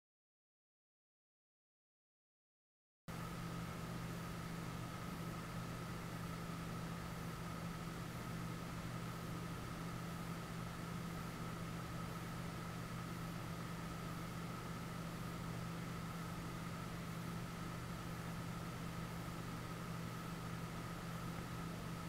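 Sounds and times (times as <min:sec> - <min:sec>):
faint high whine: 0:03.1 - 0:22.0
machine hum and hiss: 0:03.1 - 0:22.0.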